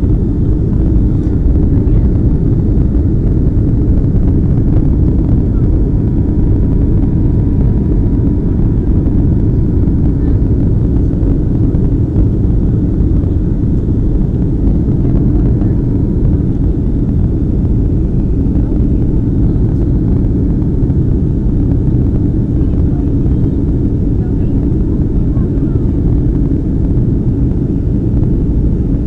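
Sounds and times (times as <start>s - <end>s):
jet engine cabin rumble: 0.0s - 29.0s.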